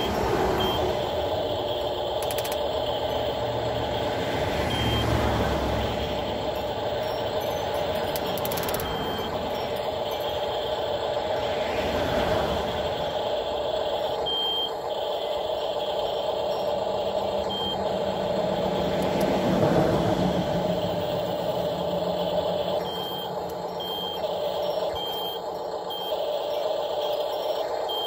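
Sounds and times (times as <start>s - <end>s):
short high beeps: 0.0s - 3.3s, 4.6s - 5.2s
road noise: 0.0s - 28.0s
small electric motors whining: 0.0s - 28.0s.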